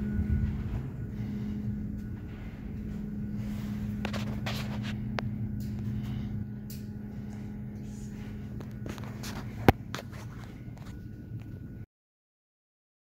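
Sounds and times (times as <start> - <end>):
low mechanical hum: 0.0 - 11.9
footsteps on concrete floor: 0.1 - 6.2.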